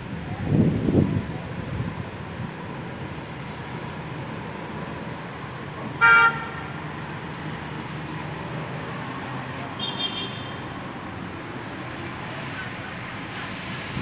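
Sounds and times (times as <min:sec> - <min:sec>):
wind and rain: 0:00.0 - 0:06.0, 0:10.8 - 0:14.0
vehicle horn honk: 0:06.0 - 0:06.7, 0:09.7 - 0:10.6.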